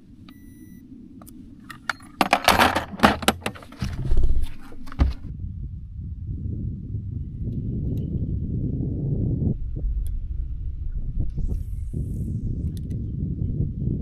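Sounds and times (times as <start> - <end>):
short beep: 0.3 - 0.8
rattling clatter: 1.7 - 5.3
low thuds: 1.8 - 14.0.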